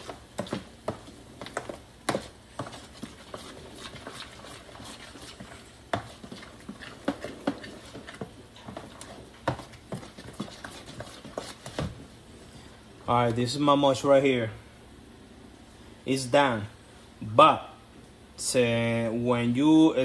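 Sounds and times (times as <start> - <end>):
wet food squishing in plastic tub: 0.0 - 12.2.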